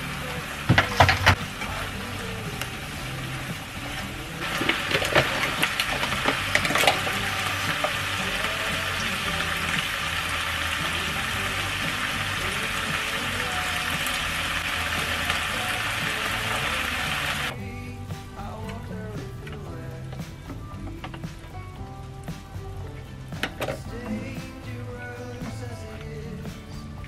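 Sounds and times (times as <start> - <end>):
food sizzling in a frying pan: 0.0 - 17.6.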